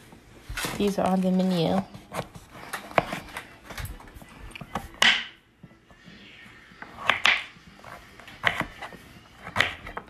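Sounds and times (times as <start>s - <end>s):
knife chopping on cutting board: 4.7s - 5.4s, 7.0s - 10.0s.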